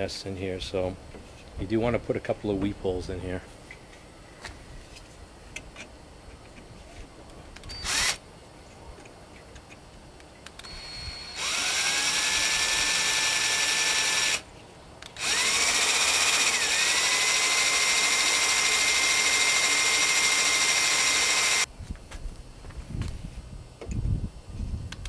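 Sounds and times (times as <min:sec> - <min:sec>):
cordless drill drilling metal: 0:07.6 - 0:08.2, 0:10.6 - 0:21.7.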